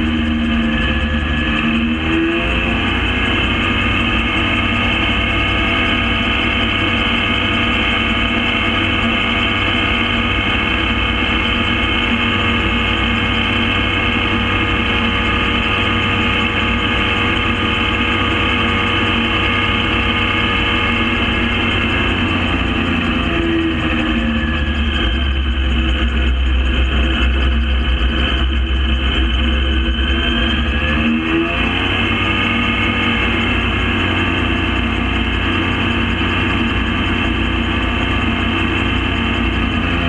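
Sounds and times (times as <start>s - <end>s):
gyrocopter engine and propeller: 0.0s - 40.0s.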